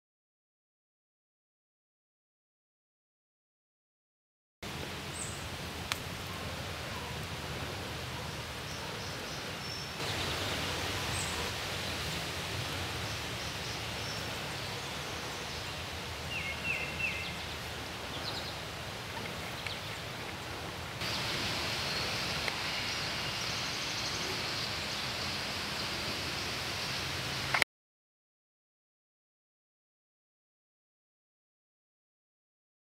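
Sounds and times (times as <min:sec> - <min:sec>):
steady hiss: 0:04.6 - 0:27.6.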